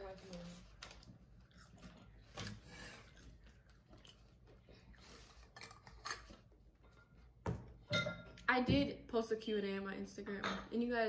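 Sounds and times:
faint chewing: 0.1 - 7.4.

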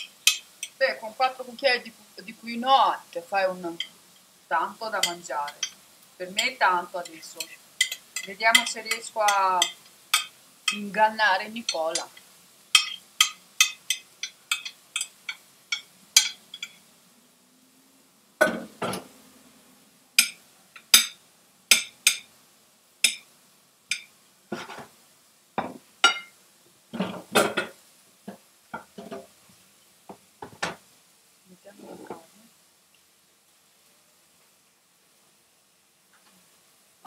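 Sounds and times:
spoon clinking on glass bowl: 0.2 - 0.8, 7.4 - 10.8, 12.8 - 16.8.

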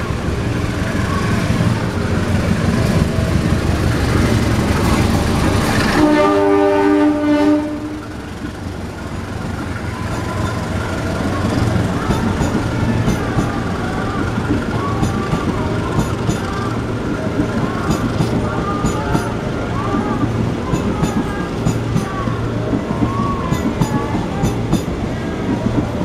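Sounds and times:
train rolling past rumbling: 0.0 - 26.0
train horn blast: 5.7 - 8.2.

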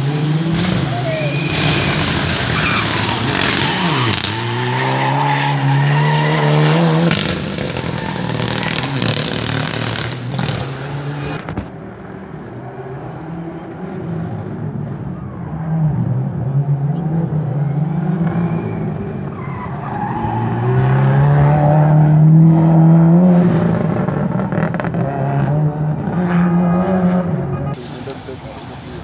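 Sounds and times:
rally car engine revving: 0.0 - 29.0
tyres skidding: 0.0 - 29.0.

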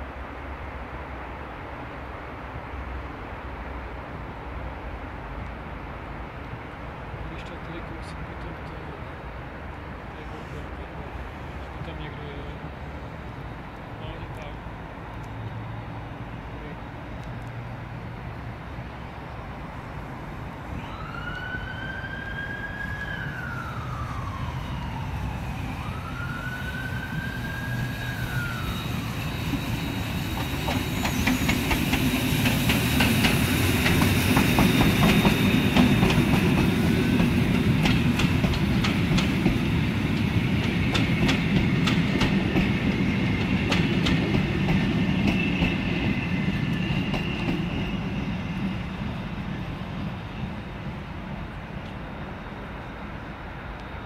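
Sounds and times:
steam train passing: 0.0 - 54.0
siren wailing: 20.8 - 30.2
wheels clicking over rail joints: 30.4 - 45.9.

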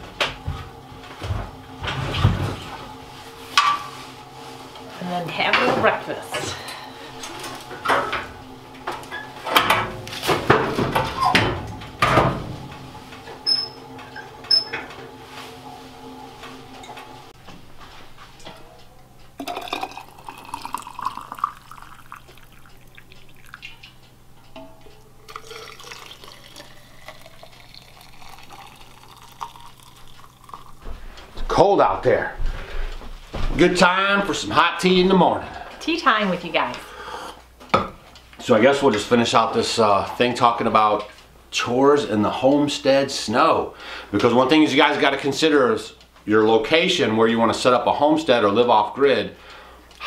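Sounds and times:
stove door metal clunks: 9.5 - 12.8
water pouring into metal tumbler: 19.4 - 23.7, 25.3 - 30.8.

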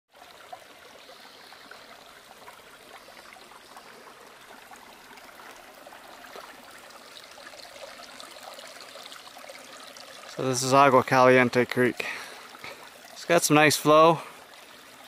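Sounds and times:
creek burbling over stones: 0.1 - 15.0.

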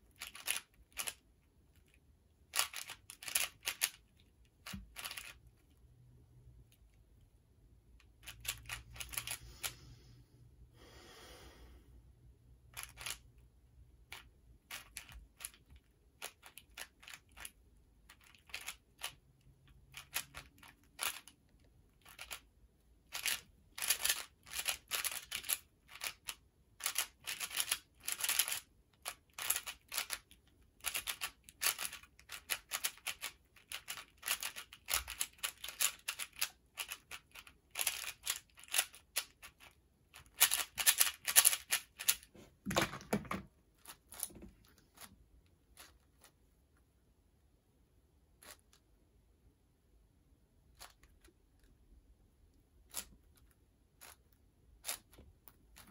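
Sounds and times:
puzzle cube layers clicking: 2.5 - 5.4, 23.1 - 42.3.

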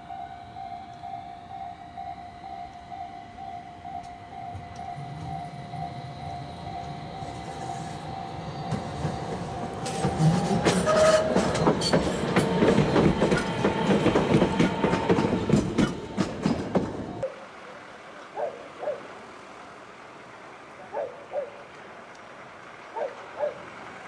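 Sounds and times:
tram whine: 0.0 - 17.4
wheels clattering over rail joints: 4.0 - 17.2.

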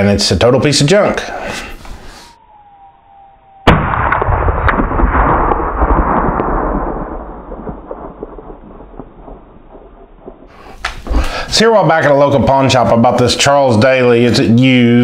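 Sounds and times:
rifle shot with echo: 3.6 - 9.5.

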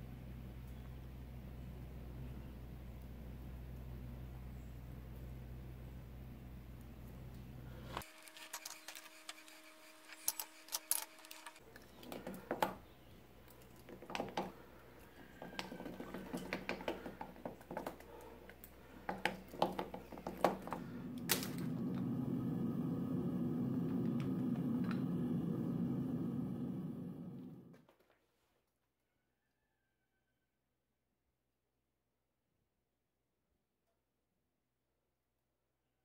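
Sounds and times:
clicks and knocks of molds: 15.3 - 21.0.

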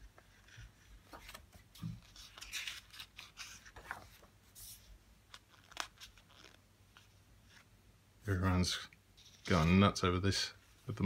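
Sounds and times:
book pages rustling: 0.0 - 7.7.

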